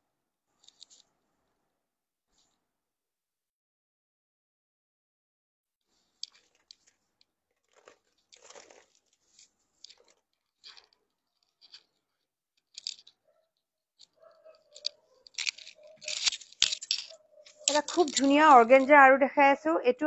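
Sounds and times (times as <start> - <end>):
clothes rustling and crinkling: 5.9 - 20.0.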